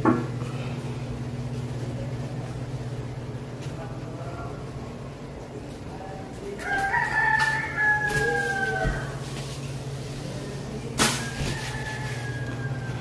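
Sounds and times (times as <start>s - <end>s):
rooster crowing: 6.6s - 9.3s, 10.8s - 13.0s.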